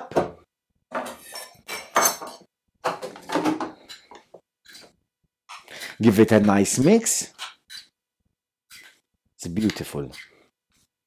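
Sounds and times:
metal spoon scraping ceramic bowl: 0:01.0 - 0:02.4, 0:03.8 - 0:04.9, 0:06.8 - 0:07.9, 0:08.7 - 0:09.0, 0:09.8 - 0:10.4.

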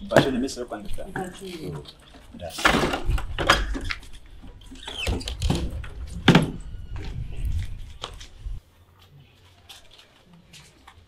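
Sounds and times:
door banging: 0:04.8 - 0:07.1.

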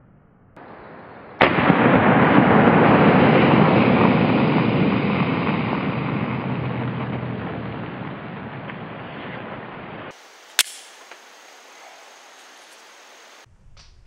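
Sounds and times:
pistol shot: 0:10.6 - 0:11.4.

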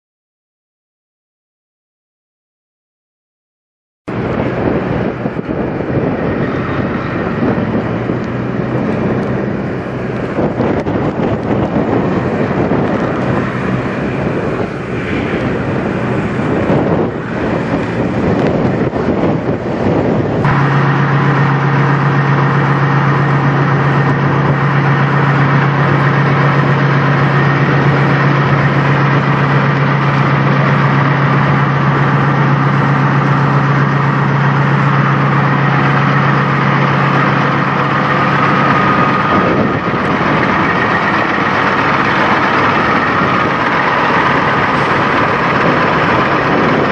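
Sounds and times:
diesel engine idling: 0:04.1 - 0:46.9
truck rolling past: 0:04.1 - 0:46.9.

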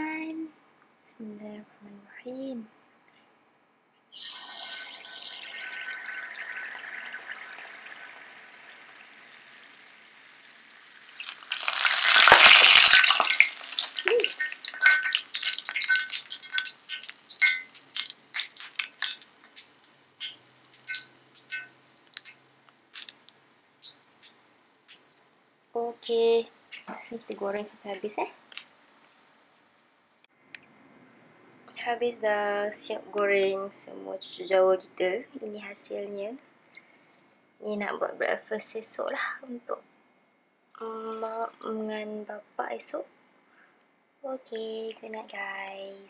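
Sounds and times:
batter sizzling in hot oil: 0:04.1 - 0:25.1
oil crackling and popping: 0:04.2 - 0:25.2, 0:28.5 - 0:29.2.

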